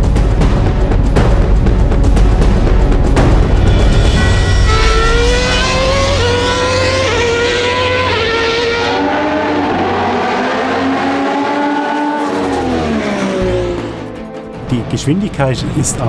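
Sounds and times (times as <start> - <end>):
racing car engine revving: 3.7 - 14.3.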